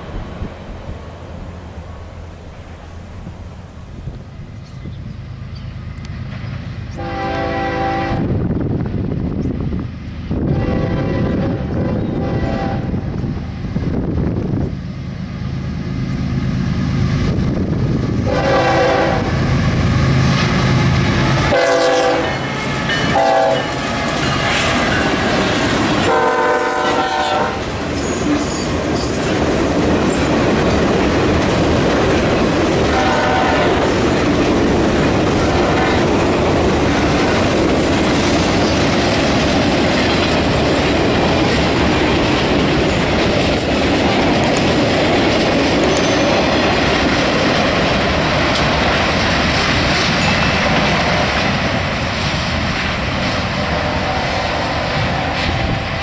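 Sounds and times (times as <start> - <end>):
diesel locomotive engine rumbling: 0.0 - 56.0
train wheels rumbling on rail: 0.0 - 56.0
train horn: 6.9 - 8.4, 10.5 - 13.1, 18.2 - 19.5, 21.3 - 24.0, 26.0 - 28.7, 32.8 - 34.0, 35.4 - 36.3, 53.2 - 56.0.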